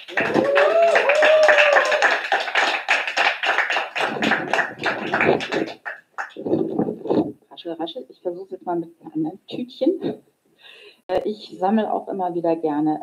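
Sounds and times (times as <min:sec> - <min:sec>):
people clapping: 0:00.0 - 0:07.0.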